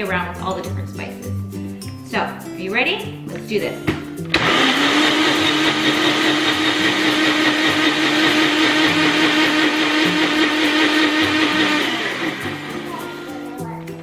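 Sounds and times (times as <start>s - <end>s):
blender motor whining: 4.3s - 13.1s.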